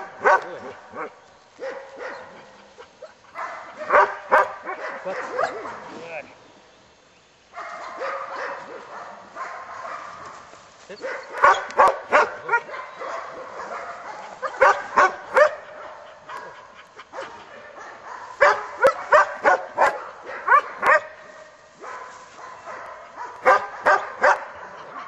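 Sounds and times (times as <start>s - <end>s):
puppy yipping: 11.0s - 15.5s.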